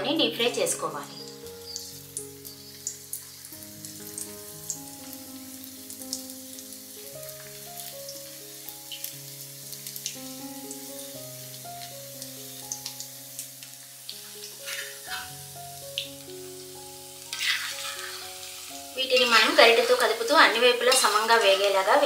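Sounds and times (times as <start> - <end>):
food deep-frying in oil: 0.0 - 22.0
soft background music: 0.0 - 22.0.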